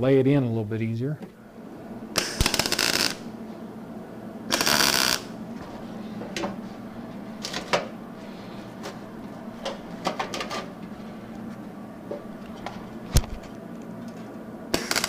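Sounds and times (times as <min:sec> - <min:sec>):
welder crackling sizzle: 0:02.1 - 0:03.2, 0:04.5 - 0:05.3.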